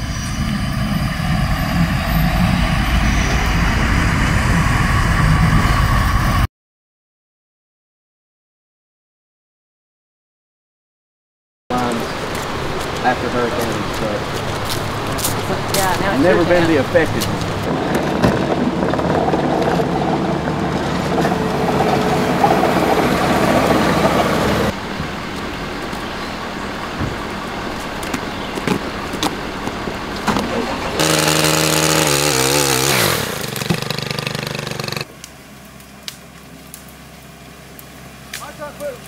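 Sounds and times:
engine running: 0:00.0 - 0:06.4, 0:11.7 - 0:39.0
engine winding down: 0:11.7 - 0:35.1
engine knocking: 0:33.2 - 0:35.1.

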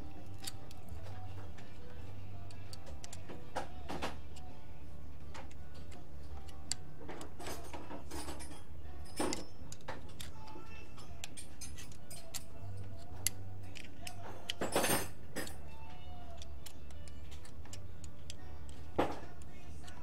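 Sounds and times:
wrench clinking on metal tool: 0:07.4 - 0:13.0, 0:13.7 - 0:15.7.

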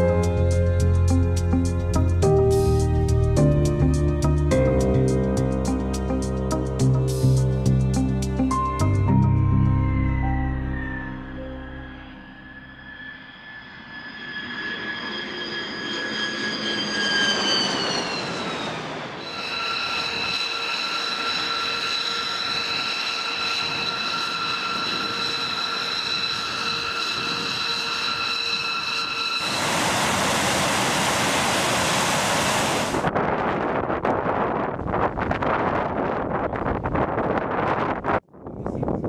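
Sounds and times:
jet engine whine: 0:09.8 - 0:36.3
loud even rushing noise: 0:29.4 - 0:33.6.

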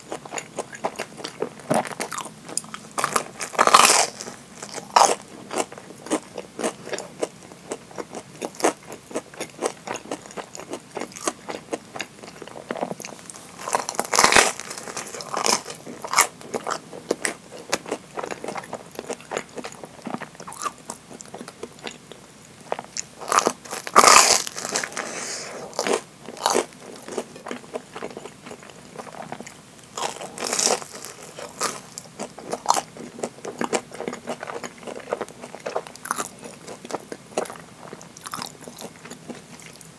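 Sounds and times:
crisp chewing crunches: 0:00.1 - 0:39.9
crunching bites of fried bread: 0:23.0 - 0:25.1, 0:29.2 - 0:39.8.

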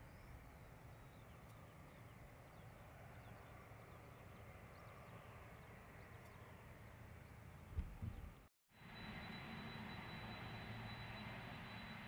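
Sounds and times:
small birds chirping: 0:00.0 - 0:08.5.

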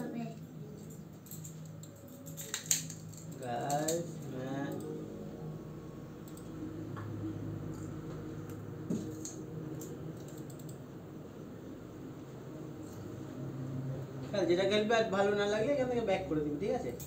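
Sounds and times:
steady low hum: 0:00.0 - 0:17.0
computer keyboard clicking: 0:09.2 - 0:10.8.

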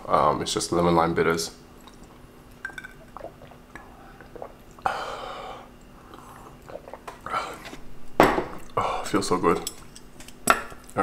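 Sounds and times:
person swallowing a drink: 0:02.6 - 0:04.9, 0:05.7 - 0:07.8
breathy exhale: 0:04.8 - 0:06.6.

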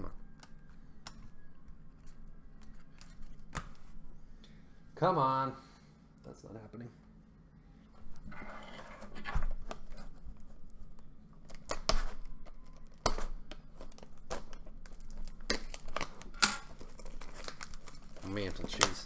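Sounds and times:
plastic wrap crinkling and tearing: 0:09.6 - 0:19.0.

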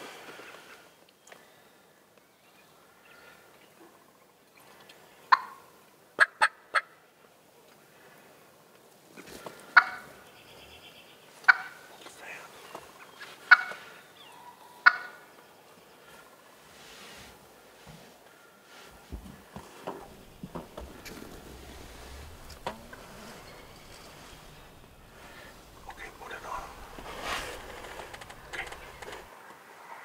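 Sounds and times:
turkey gobbling: 0:05.3 - 0:05.6, 0:09.8 - 0:10.1, 0:11.5 - 0:11.8, 0:13.5 - 0:13.8, 0:14.5 - 0:15.2, 0:19.9 - 0:29.3.

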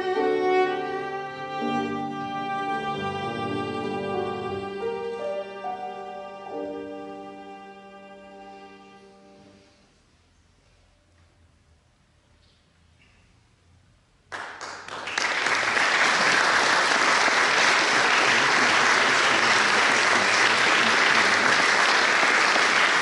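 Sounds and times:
audience applause: 0:14.3 - 0:23.0.

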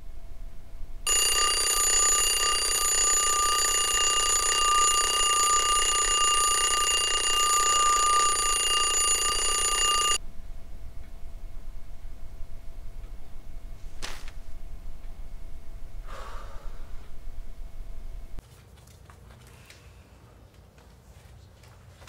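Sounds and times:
twin-bell alarm clock ringing: 0:01.1 - 0:10.2.

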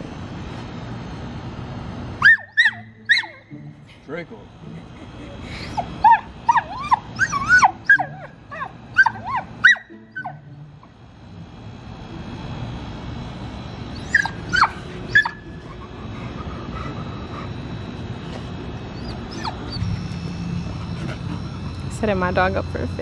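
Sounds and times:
dog whimpering and yipping: 0:02.2 - 0:03.5, 0:05.6 - 0:10.4, 0:13.9 - 0:17.4, 0:18.9 - 0:19.8.

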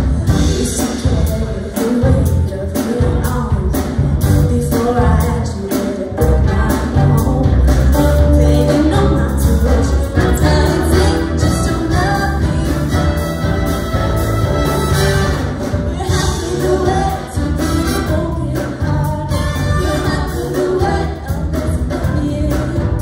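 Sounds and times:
jazz big band playing: 0:00.0 - 0:23.0
woman singing lead: 0:00.0 - 0:23.0
backing vocalists singing: 0:14.8 - 0:23.0.

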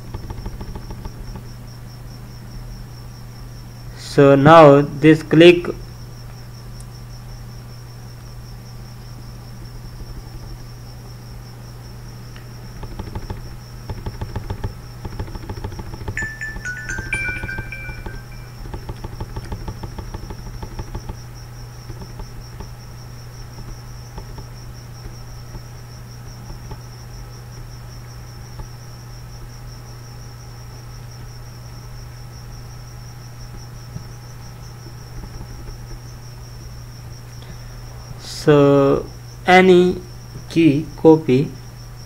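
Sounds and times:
quick run of clicks: 0:00.0 - 0:01.5, 0:12.3 - 0:21.2, 0:21.8 - 0:22.8
high-pitched insect trill: 0:00.0 - 0:42.0
low steady hum: 0:00.0 - 0:42.0.

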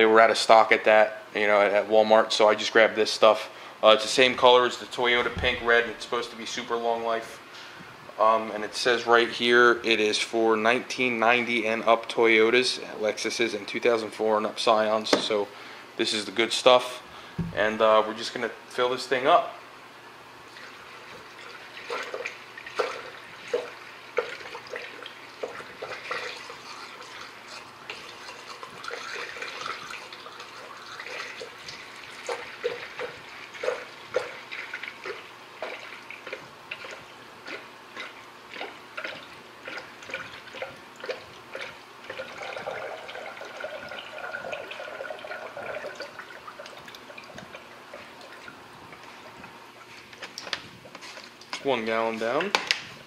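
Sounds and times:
liquid glugging from jug: 0:04.1 - 0:06.3, 0:20.5 - 0:50.5.

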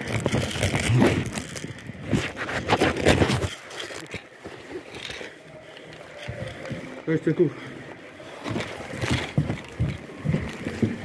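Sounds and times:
phone rubbing against clothing: 0:02.0 - 0:03.7.

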